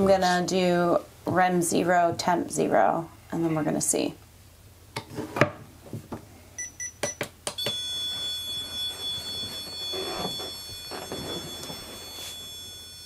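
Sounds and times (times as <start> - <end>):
high-pitched electronic tone: 7.6 - 12.8.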